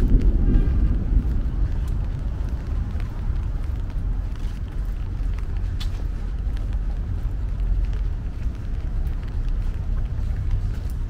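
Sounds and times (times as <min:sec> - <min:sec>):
traffic rumble: 0:00.0 - 0:11.0
faint light ticks: 0:01.3 - 0:11.0.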